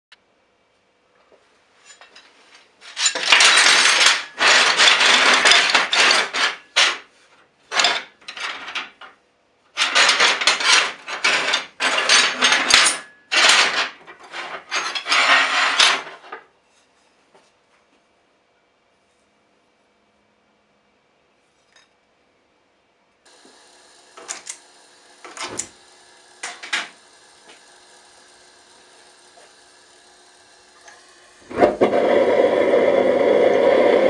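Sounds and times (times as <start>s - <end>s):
metal files clattering and scraping: 1.8s - 7.1s, 7.7s - 9.0s, 9.8s - 16.9s, 25.2s - 27.8s.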